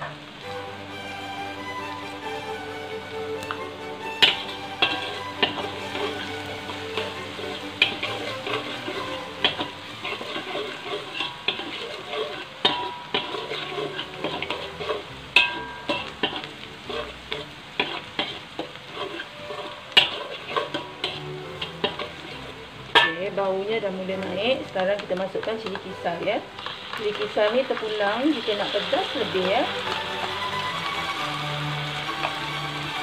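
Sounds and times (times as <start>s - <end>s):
garlic and onion sizzling in oil: 0.0s - 33.0s
metal spatula scraping a pan: 4.0s - 23.5s, 24.1s - 33.0s.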